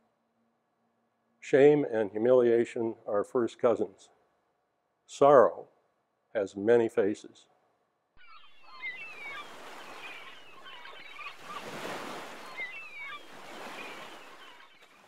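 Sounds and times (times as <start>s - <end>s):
small waves washing on shore: 8.9s - 15.0s.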